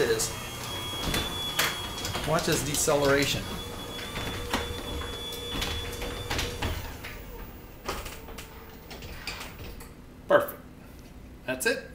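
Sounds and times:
garage door opener running: 0:00.0 - 0:10.2
knocks: 0:00.9 - 0:07.2.

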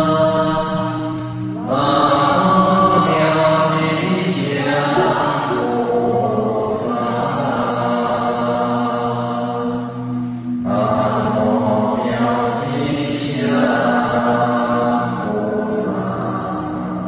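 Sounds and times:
voices chanting held notes: 0:00.0 - 0:17.0.

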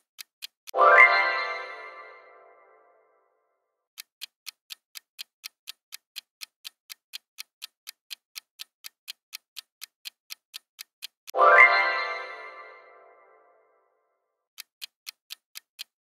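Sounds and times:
timer clock ticking: 0:00.0 - 0:02.2, 0:03.9 - 0:12.9, 0:14.5 - 0:16.0.

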